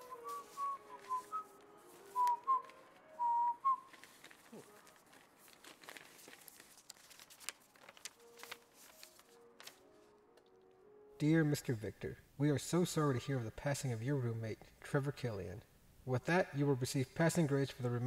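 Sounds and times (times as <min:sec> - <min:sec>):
person whistling a tune: 0:00.0 - 0:04.8
paper crinkling: 0:00.0 - 0:10.8.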